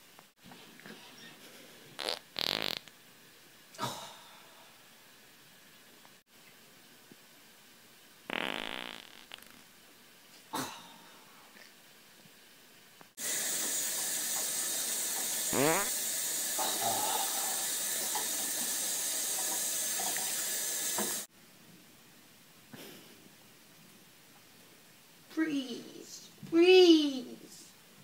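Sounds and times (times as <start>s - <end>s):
fart: 2.0s - 2.9s, 8.3s - 9.7s, 15.5s - 16.0s
faucet running into sink: 13.2s - 21.3s.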